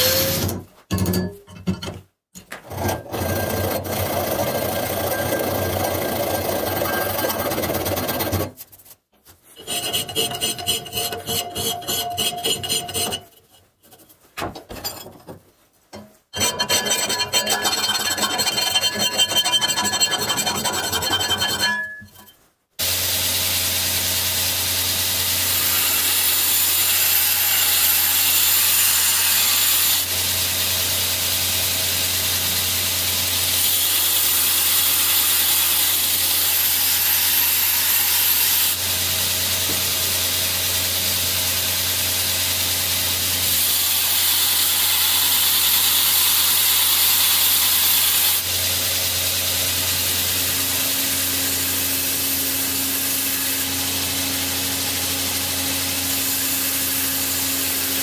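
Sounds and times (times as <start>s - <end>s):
belt grinder grinding hiss: 39.5s - 58.0s.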